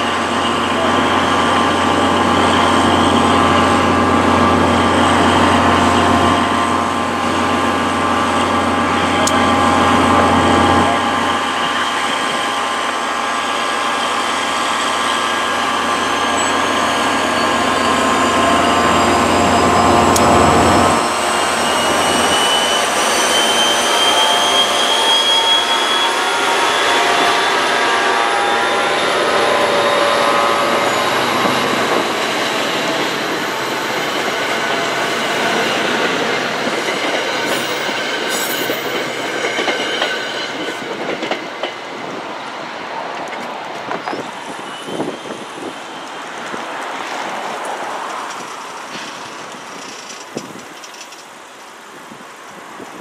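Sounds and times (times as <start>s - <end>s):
rising whine of passing coaches: 0.0s - 39.3s
diesel locomotive engine: 0.0s - 53.0s.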